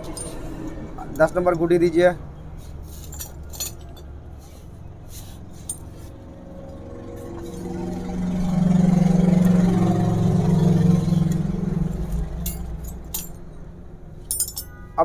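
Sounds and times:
metal tool clinks: 0.0s - 0.4s, 3.0s - 4.1s, 12.4s - 13.4s, 14.2s - 14.9s
vehicle engine passing: 0.0s - 14.4s.

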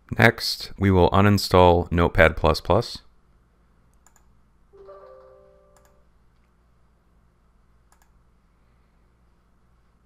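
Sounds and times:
mouse clicks: 3.9s - 4.3s, 5.8s - 6.0s, 7.9s - 8.2s
soft computer chime: 4.8s - 6.1s.

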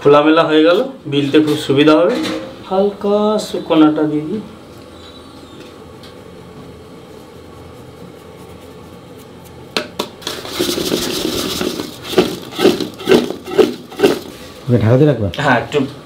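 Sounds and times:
dough pieces rattling in metal bowl: 10.0s - 14.4s.

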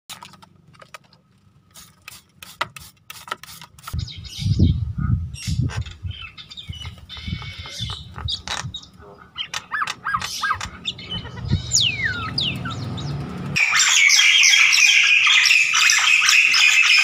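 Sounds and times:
myna birds clicking and calling: 5.4s - 17.0s
bird whistling call: 13.6s - 17.0s.

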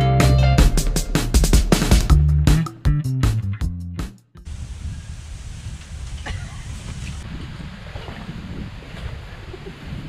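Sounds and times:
background music with bass: 0.0s - 4.5s.

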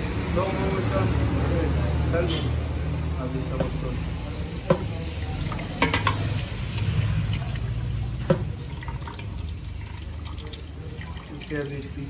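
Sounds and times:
liquid pouring into bowl: 4.7s - 12.0s.

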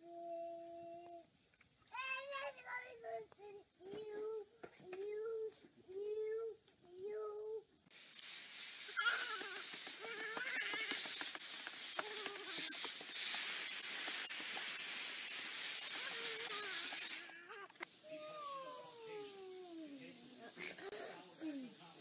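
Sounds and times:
water showering down: 7.9s - 19.6s
girl laughing and squealing: 9.0s - 11.0s.

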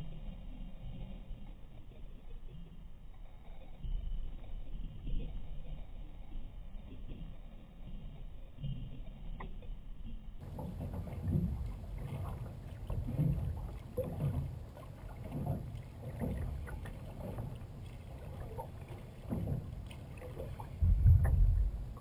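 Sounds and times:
kayak paddle strokes in water: 0.0s - 22.0s
water washing along hull: 0.0s - 22.0s
low rumble: 19.3s - 22.0s.

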